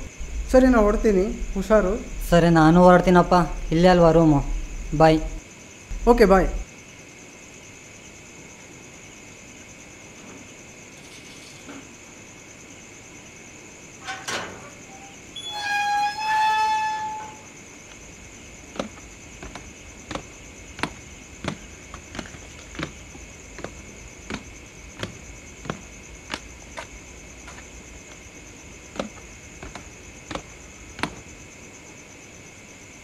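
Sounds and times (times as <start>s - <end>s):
steady high-pitched hum: 0.0s - 33.0s.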